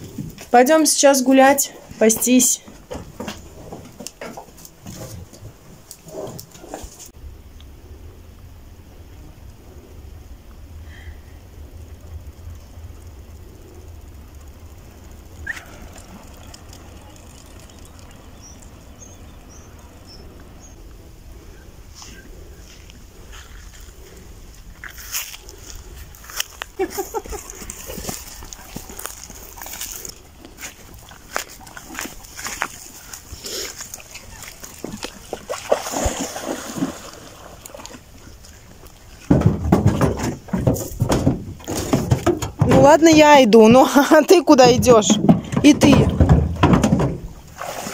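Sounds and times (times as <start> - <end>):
low buffeting and knocks: 1.6 - 6.9, 38.8 - 43.8, 44.4 - 47.6
small birds chirping: 15.1 - 23.8
dog splashing in water: 27.0 - 38.5, 45.6 - 47.9.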